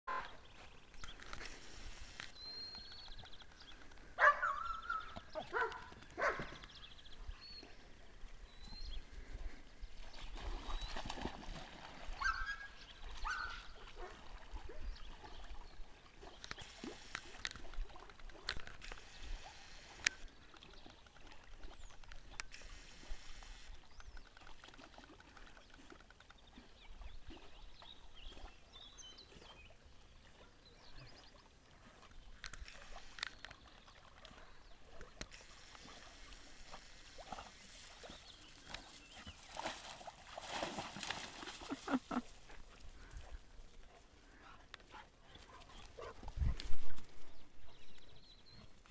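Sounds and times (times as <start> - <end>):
dog splashing in water: 10.2 - 14.6, 36.6 - 42.3.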